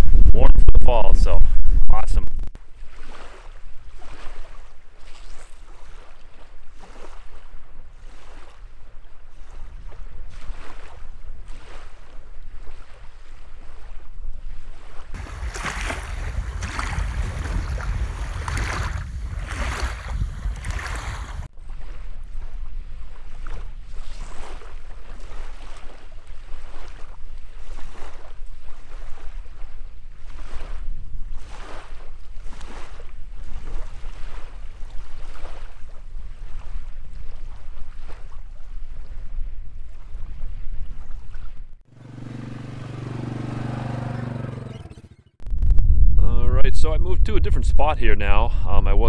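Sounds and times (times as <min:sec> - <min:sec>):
wind rumbling on microphone: 0:00.0 - 0:02.6, 0:06.3 - 0:41.8, 0:45.4 - 0:49.0
small waves lapping on gravel: 0:02.7 - 0:38.5.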